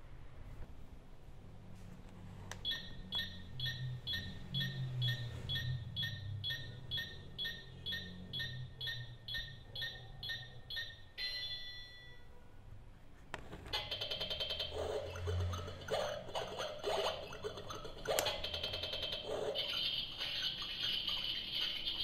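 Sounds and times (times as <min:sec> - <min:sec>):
toy stove electronic ticking: 0:13.8 - 0:22.0.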